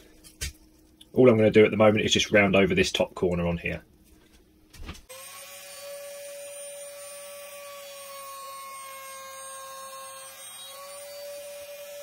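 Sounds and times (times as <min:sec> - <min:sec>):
router high whine: 0:05.1 - 0:12.0.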